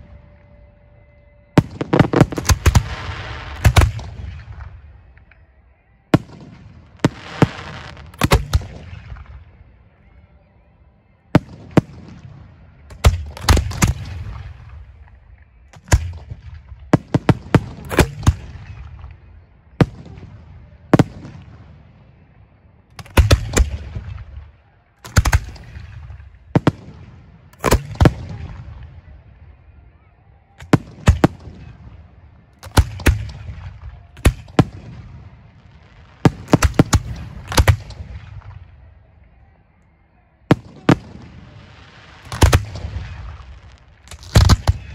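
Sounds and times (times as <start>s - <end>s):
firework shells booming: 1.6s - 4.7s, 36.2s - 38.6s.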